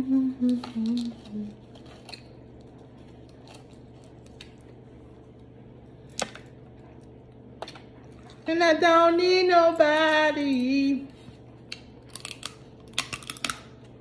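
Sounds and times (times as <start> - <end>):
person humming: 0.0 - 1.7
crab shell cracking: 11.7 - 13.9.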